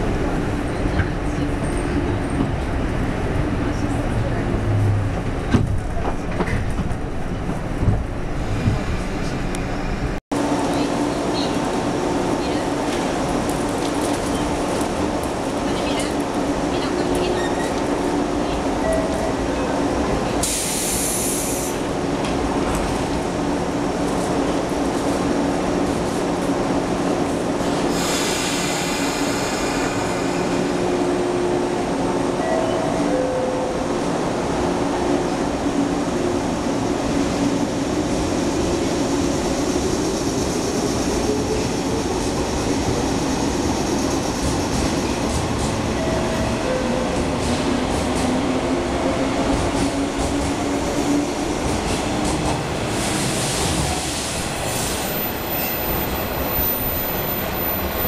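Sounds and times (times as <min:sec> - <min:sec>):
air hiss: 0:20.4 - 0:21.8, 0:27.9 - 0:30.7.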